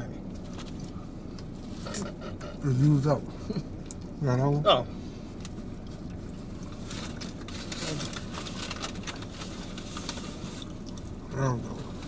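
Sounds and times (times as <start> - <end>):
foil wrapper crinkling: 6.3 - 11.1.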